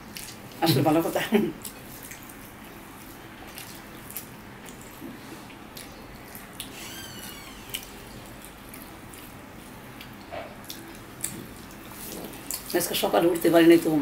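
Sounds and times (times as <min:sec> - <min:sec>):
people chewing food: 0:00.0 - 0:14.0
high squeak: 0:06.7 - 0:07.8.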